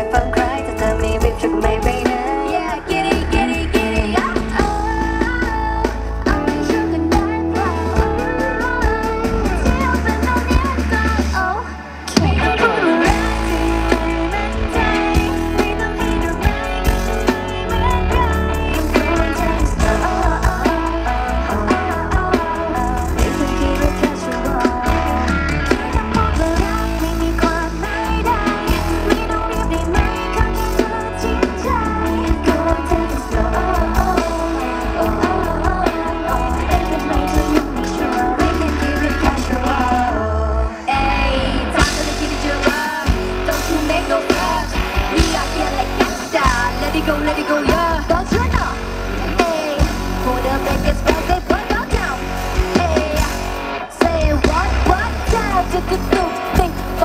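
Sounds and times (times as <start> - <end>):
live pop-rock band playing: 0.0 - 57.0
person singing: 0.0 - 57.0.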